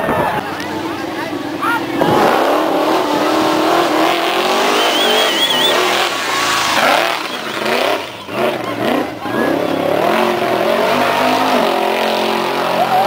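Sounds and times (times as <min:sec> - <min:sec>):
truck engine revving hard: 0:00.0 - 0:13.0
short warbling whistle: 0:04.5 - 0:06.1.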